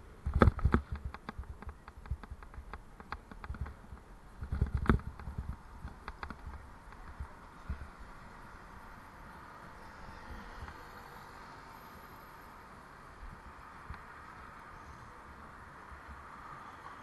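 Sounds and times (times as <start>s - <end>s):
bike rattling over bumpy paving: 0.2s - 11.0s.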